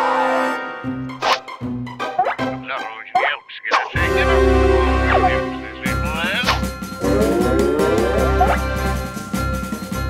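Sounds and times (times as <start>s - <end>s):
background music: 0.0s - 10.0s
vocal noises sliding in pitch: 7.0s - 8.7s.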